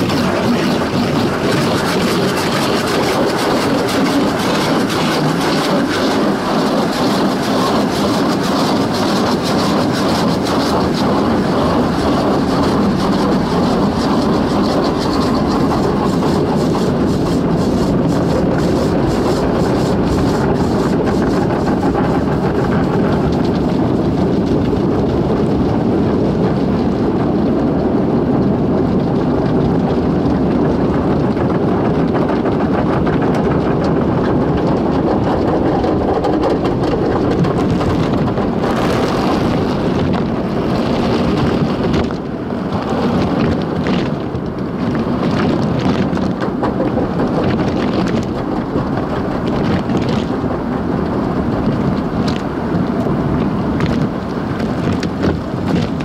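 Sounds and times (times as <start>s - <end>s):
wash brushes scrubbing car: 0.0s - 23.3s.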